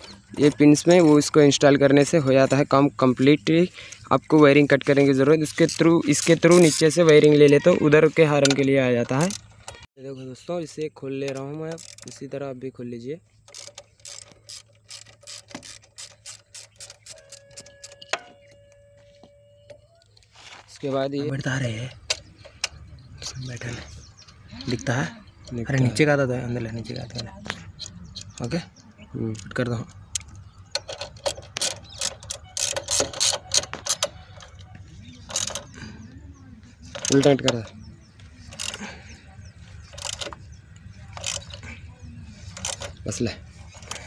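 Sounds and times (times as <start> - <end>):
ratchet wrench clicking: 5.6 - 7.6, 8.4 - 9.8, 11.3 - 12.2, 13.5 - 18.3, 30.1 - 35.8, 36.9 - 37.7, 38.5 - 38.9, 39.8 - 40.5, 41.1 - 41.7, 42.5 - 43.1.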